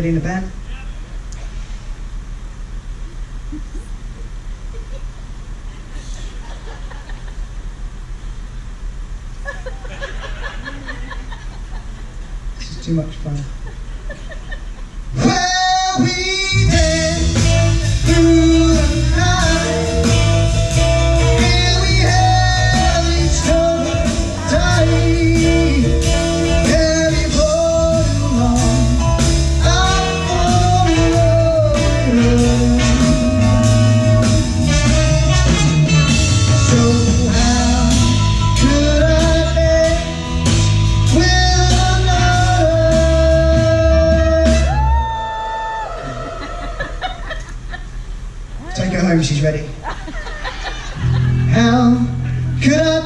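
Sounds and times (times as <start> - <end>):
drums: 0.0 - 48.8
acoustic-electric guitar: 15.1 - 46.9, 50.9 - 53.0
man singing: 15.2 - 20.5, 21.1 - 45.0, 51.5 - 53.0.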